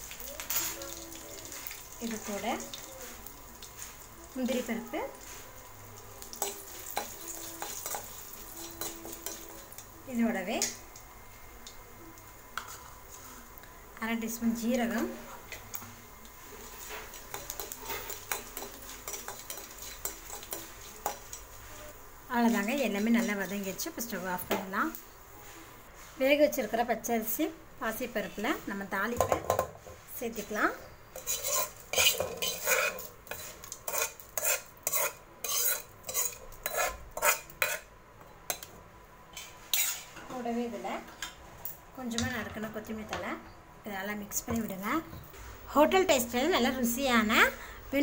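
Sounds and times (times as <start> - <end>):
metal spoon scraping a pan: 0.4 - 3.2, 6.3 - 9.9, 12.6 - 13.4, 16.5 - 23.7, 31.1 - 37.9, 39.3 - 40.3.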